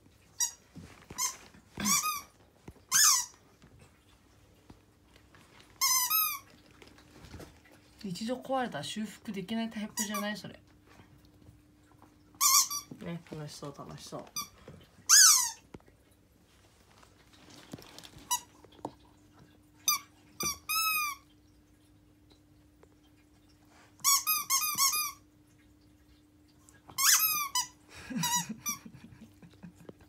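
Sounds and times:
squeaky toy squeaking: 1.2s - 2.3s, 2.9s - 3.3s, 5.8s - 6.4s, 12.4s - 12.9s, 15.1s - 15.6s, 24.0s - 25.2s, 27.0s - 28.4s.

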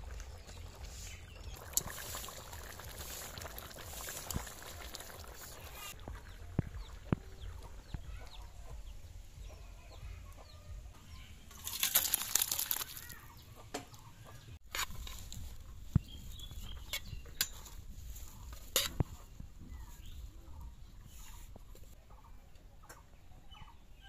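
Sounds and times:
food scraped and poured from wok: 11.6s - 13.2s.

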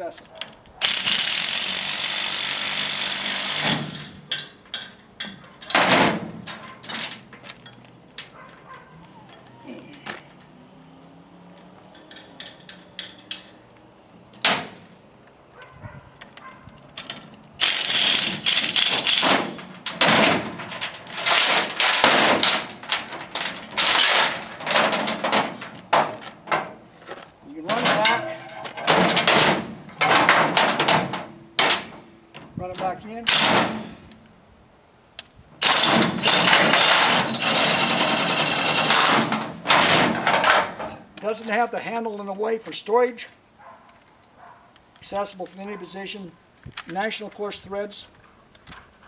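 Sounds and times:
chain rattling and clanking: 0.2s - 9.5s, 11.9s - 13.7s, 16.2s - 26.9s, 27.5s - 32.1s, 35.6s - 41.1s, 43.1s - 49.0s
impact wrench running: 0.8s - 4.0s, 17.6s - 19.6s
metal clatter: 3.0s - 8.8s, 11.9s - 13.6s, 16.4s - 26.9s, 27.6s - 32.5s, 35.6s - 41.1s.

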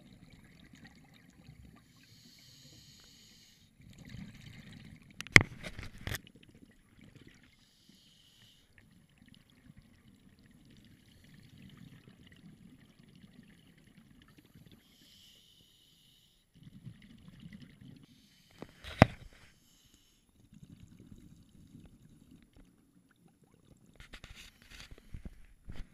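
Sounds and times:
burbling exhaled bubbles: 16.5s - 19.4s, 20.4s - 24.1s.

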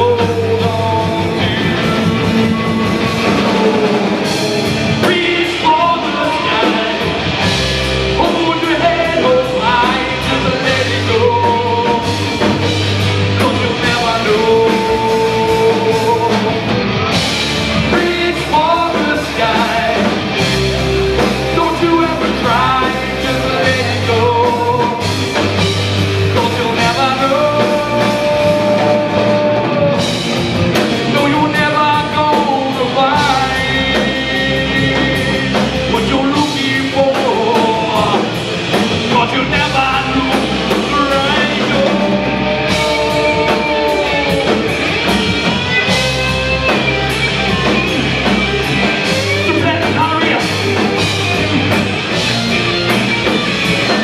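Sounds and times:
man singing: 0.0s - 20.6s, 21.2s - 47.9s, 48.6s - 51.2s
bass guitar: 0.0s - 54.0s
drum kit: 0.0s - 54.0s
electric guitars: 0.0s - 54.0s.

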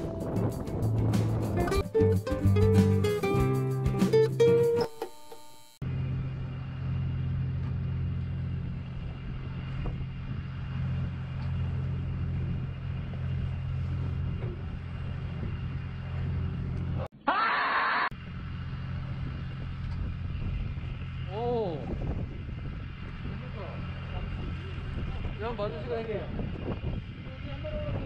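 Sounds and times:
boat engine droning: 5.6s - 17.1s, 18.1s - 28.0s.

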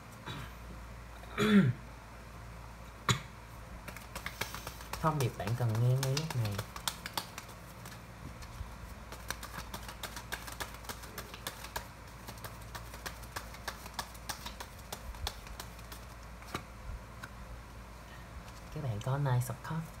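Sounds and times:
cards being shuffled: 3.8s - 17.4s.

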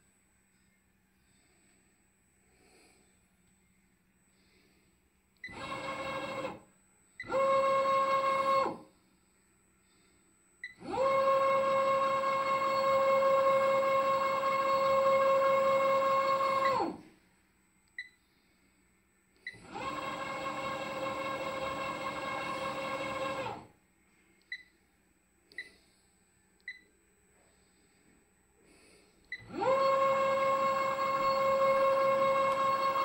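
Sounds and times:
turntable drive motor whining: 10.8s - 17.0s, 29.4s - 33.0s
short controller beeps: 26.6s - 26.9s.

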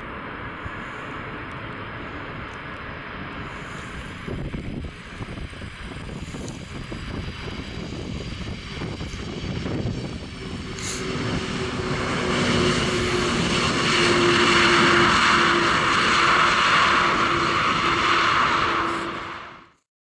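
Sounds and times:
jet engine roar: 0.0s - 19.8s
low hum: 0.0s - 19.8s.

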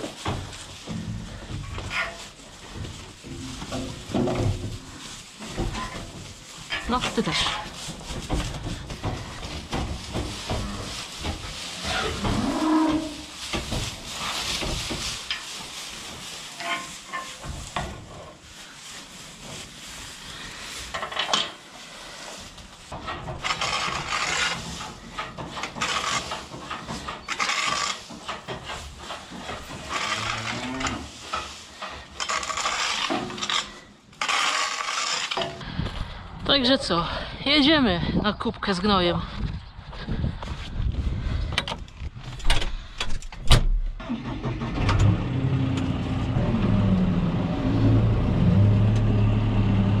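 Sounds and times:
cattle shuffling and knocking: 0.0s - 36.8s.

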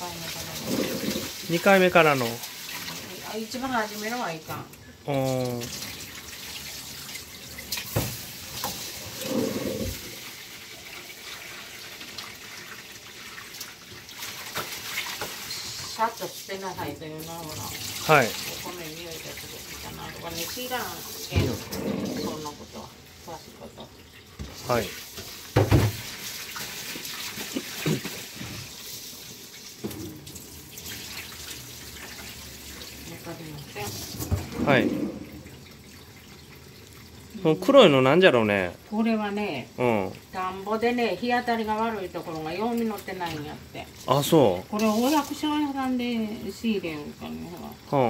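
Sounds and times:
rice washed by hand in water: 0.0s - 4.5s, 5.1s - 23.4s, 24.4s - 30.0s
tap water splashing in bowl: 4.0s - 8.9s, 13.4s - 16.0s, 20.2s - 22.5s, 23.8s - 28.8s, 29.8s - 35.3s.

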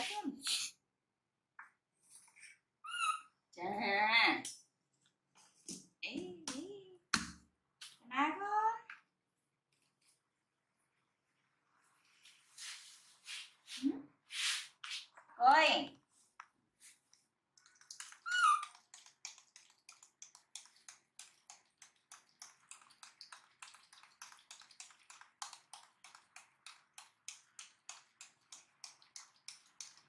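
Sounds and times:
baby monkey crying: 18.2s - 18.8s.

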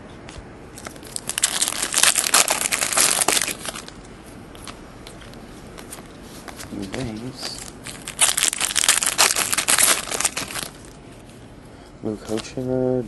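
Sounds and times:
foil wrapper crinkling and tearing: 0.8s - 4.0s, 6.7s - 11.0s.

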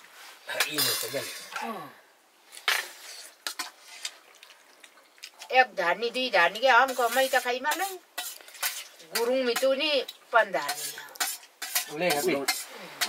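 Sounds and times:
woman talking: 5.5s - 8.0s, 9.1s - 10.8s.

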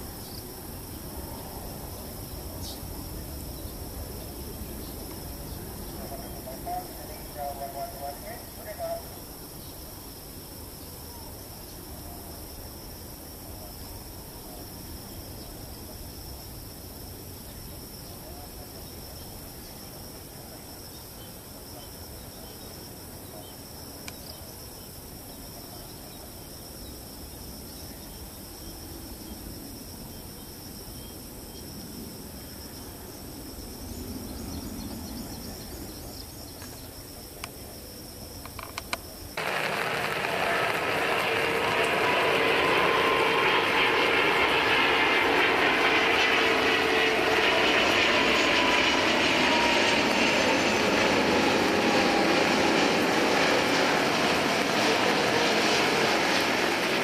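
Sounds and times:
loud jet engine whine: 0.0s - 17.9s, 39.3s - 57.0s
distant jet engine rumble: 0.0s - 20.7s, 30.6s - 57.0s.

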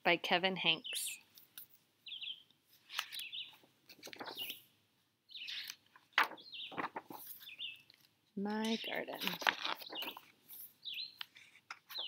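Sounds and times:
wild birds chirping: 0.6s - 12.0s
book pages turning: 2.7s - 4.7s, 5.4s - 12.0s.

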